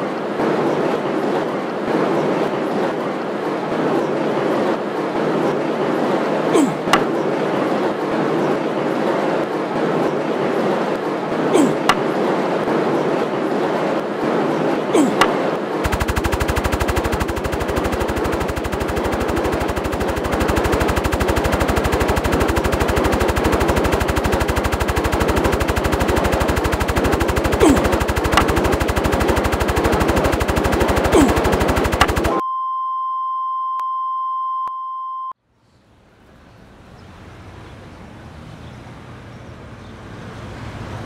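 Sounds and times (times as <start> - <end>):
drone rotors chopping: 14.9 - 32.4.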